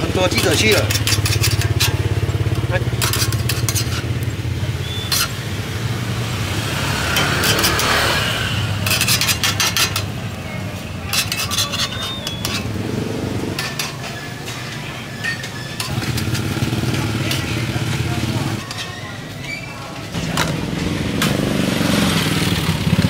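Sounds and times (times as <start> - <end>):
metal spatula scraping pan: 0.1 - 4.2, 4.8 - 5.5, 6.6 - 12.8, 13.4 - 18.0, 18.6 - 19.8.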